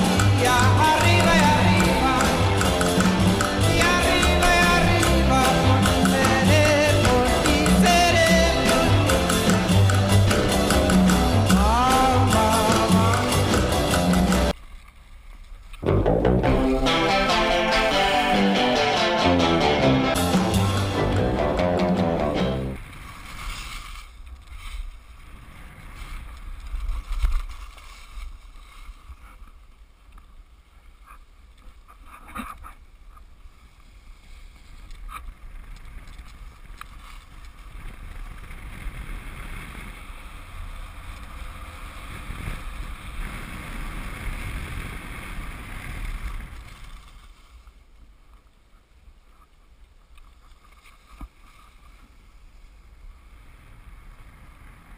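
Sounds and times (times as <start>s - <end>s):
wind buffeting microphone: 37.7s - 46.8s.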